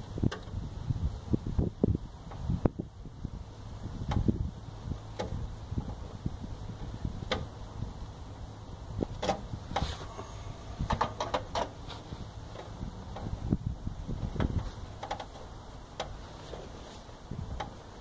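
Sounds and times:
low handling rumble: 0:00.0 - 0:18.0
clicks and knocks in metal panel: 0:10.8 - 0:11.8.

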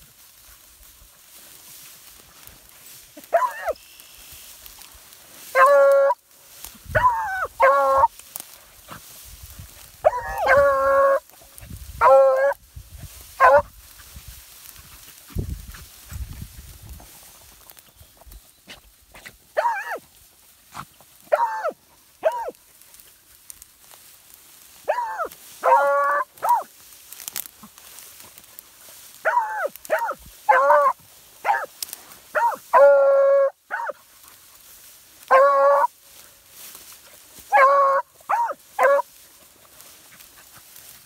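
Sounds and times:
hounds baying: 0:03.2 - 0:03.8, 0:05.4 - 0:06.2, 0:06.9 - 0:08.2, 0:10.0 - 0:11.4, 0:12.0 - 0:12.6, 0:13.4 - 0:13.7, 0:19.6 - 0:20.0, 0:21.2 - 0:22.6, 0:24.8 - 0:26.7, 0:29.1 - 0:36.0, 0:37.3 - 0:39.2.

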